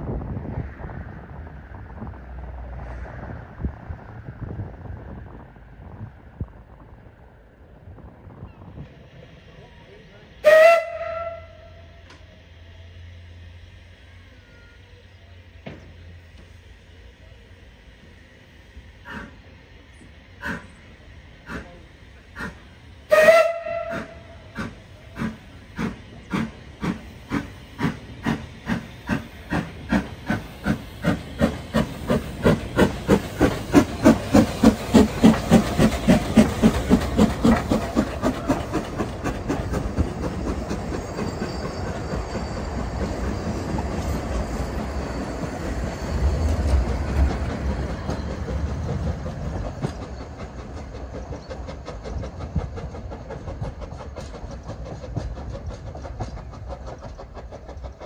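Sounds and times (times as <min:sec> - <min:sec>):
carriages rumbling on rails: 0:00.0 - 0:58.0
steam locomotive chuffing: 0:01.2 - 0:58.0
hiss of steam: 0:11.6 - 0:58.0.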